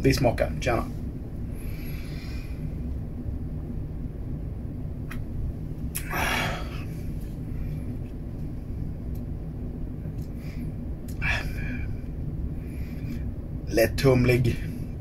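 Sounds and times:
breathy exhale: 0:01.5 - 0:02.7, 0:06.0 - 0:07.8, 0:10.4 - 0:13.3.

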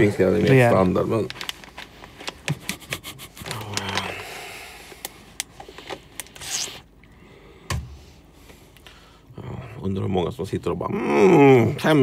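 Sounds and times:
coffee bean bag rustling: 0:00.0 - 0:02.4.

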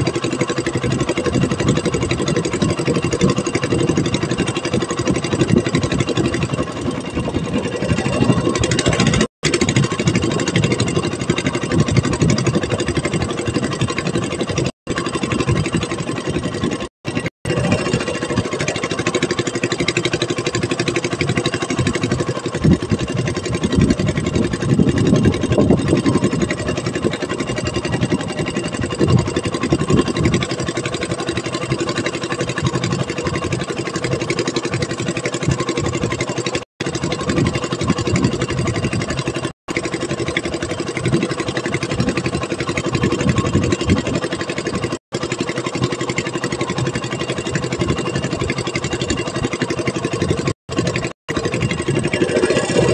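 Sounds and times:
boat engine running: 0:00.0 - 0:52.9.

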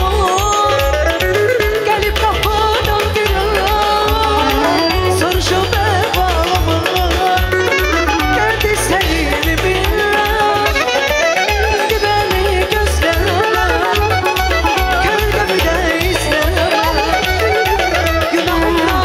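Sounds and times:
live band dance music: 0:00.0 - 0:19.0.

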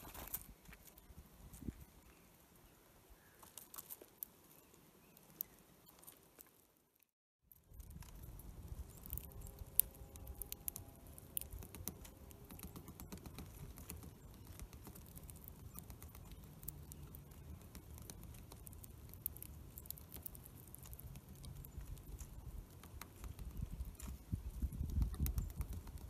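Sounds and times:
beaks tapping on seeds: 0:07.5 - 0:26.0
wind rumble on microphone: 0:21.7 - 0:26.0.

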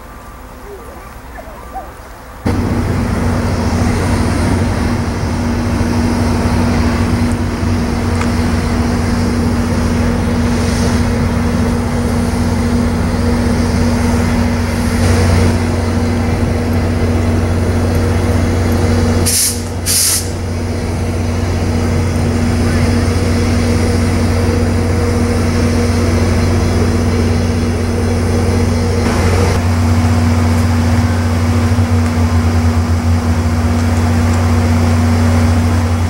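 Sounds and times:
diesel locomotive engine droning: 0:00.0 - 0:36.0
air hissing: 0:19.2 - 0:20.5.

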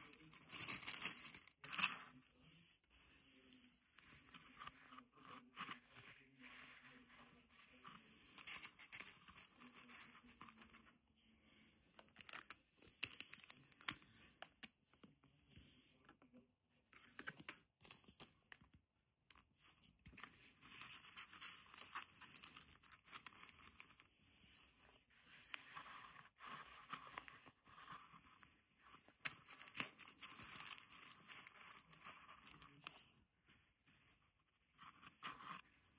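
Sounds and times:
tissue paper and fabric rustling: 0:00.0 - 0:02.2.

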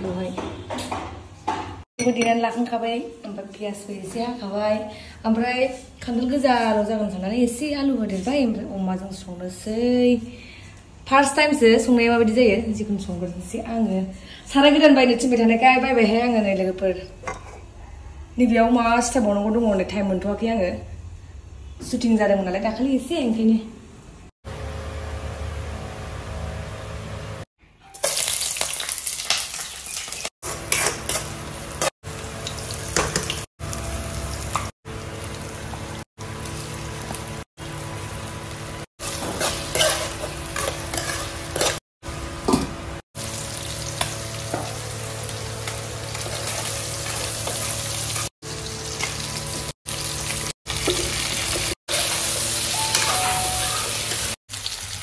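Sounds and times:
meat sizzling in oil: 0:28.0 - 0:41.8, 0:43.2 - 0:55.0
metal spoon scraping wok: 0:30.4 - 0:31.9, 0:39.0 - 0:41.8.

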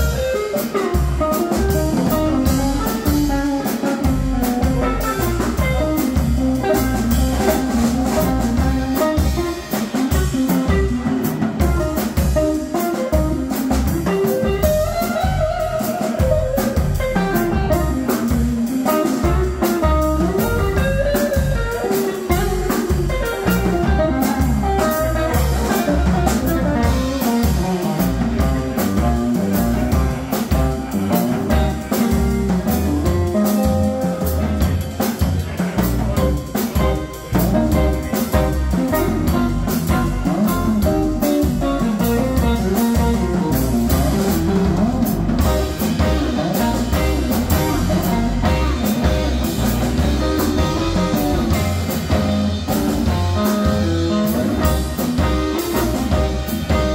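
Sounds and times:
drum kit: 0:00.0 - 0:56.9
electric guitar melody: 0:00.0 - 0:56.9
upright double bass: 0:00.0 - 0:56.9.

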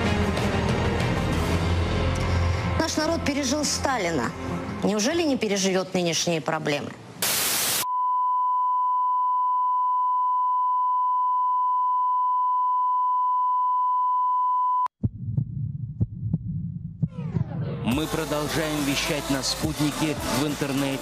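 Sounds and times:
tv static burst: 0:07.2 - 0:07.9
steady broadcast test tone: 0:07.2 - 0:14.9
low rumble: 0:15.0 - 0:18.3.

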